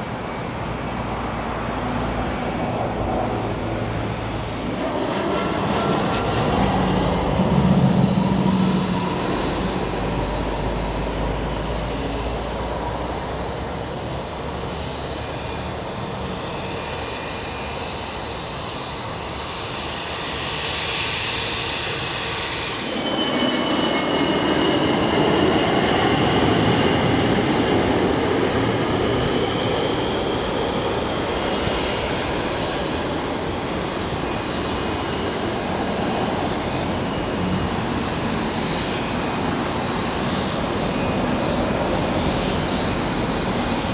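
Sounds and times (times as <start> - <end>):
jet engines rushing and whining: 0.0 - 43.9
louder jet engine with falling whine: 0.0 - 43.9.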